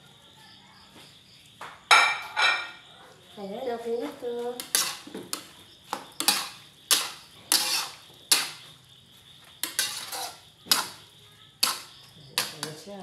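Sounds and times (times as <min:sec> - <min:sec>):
metal spatula scraping a wok: 0:04.6 - 0:08.8, 0:09.6 - 0:12.9.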